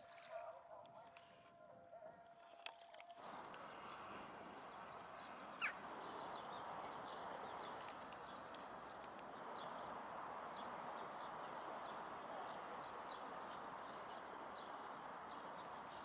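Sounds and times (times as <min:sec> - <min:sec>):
steady outdoor hiss: 0:03.2 - 0:16.0
high bird chirps: 0:05.4 - 0:05.9.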